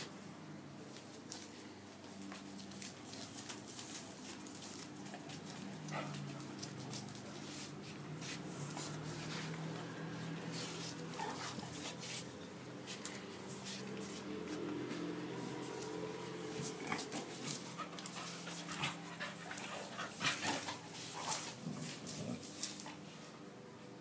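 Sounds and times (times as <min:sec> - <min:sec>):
claws clicking and scuffling on tiles: 0:00.9 - 0:23.0
dogs vocalizing while play-fighting: 0:16.5 - 0:23.0.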